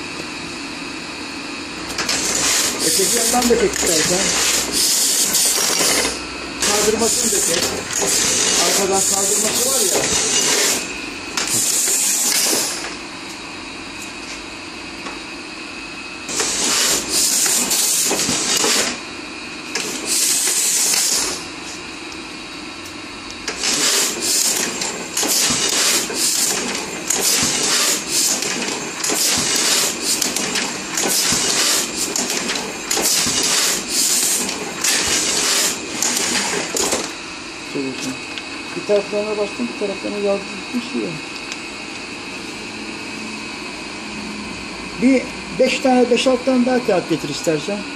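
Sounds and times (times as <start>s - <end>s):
press hissing: 1.9s - 13.0s, 16.3s - 19.0s, 19.7s - 21.5s, 23.4s - 37.2s
printing press clattering: 1.9s - 13.0s, 16.3s - 19.0s, 23.4s - 37.2s.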